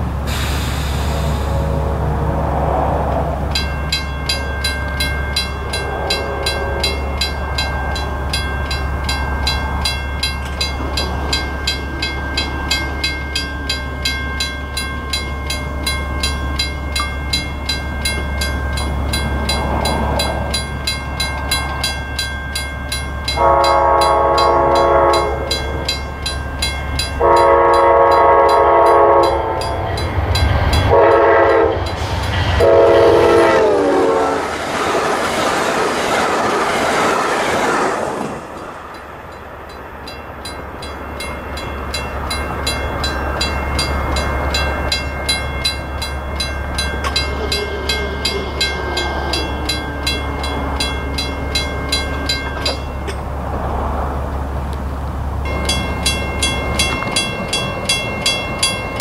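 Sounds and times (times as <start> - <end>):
locomotive approaching: 0.0 - 59.0
train air horn blasts: 0.3 - 2.9, 5.8 - 7.1, 23.4 - 25.6, 27.2 - 29.8, 30.9 - 34.5.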